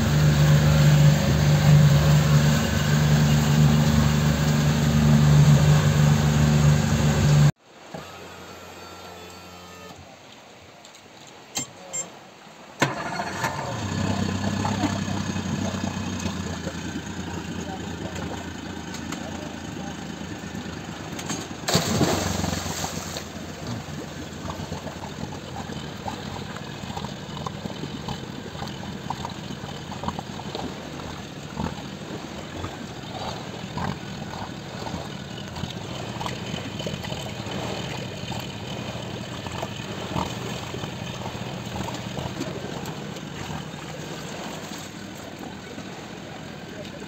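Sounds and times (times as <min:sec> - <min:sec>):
outboard motor idling: 0:00.0 - 0:09.9, 0:12.8 - 0:47.0.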